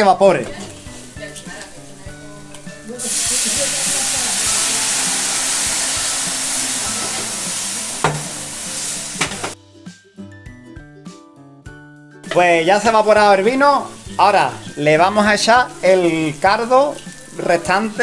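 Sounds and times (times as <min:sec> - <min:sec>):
wine sizzling in hot pan: 0:00.4 - 0:09.6, 0:12.4 - 0:18.0.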